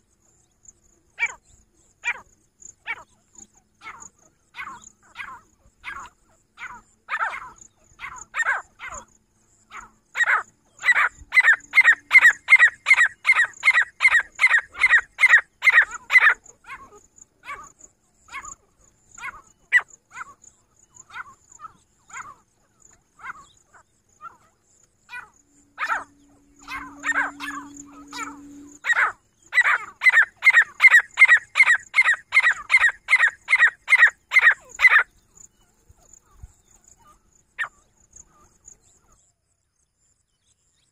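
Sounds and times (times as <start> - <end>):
francolin calling: 1.1 - 39.1.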